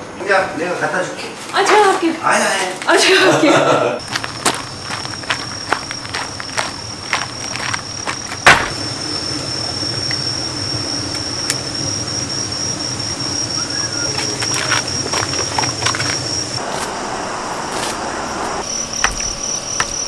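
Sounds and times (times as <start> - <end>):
footsteps on gravel: 4.0 - 9.0, 13.6 - 17.0
insects trilling: 4.0 - 20.0
sharp knock: 8.4 - 8.8.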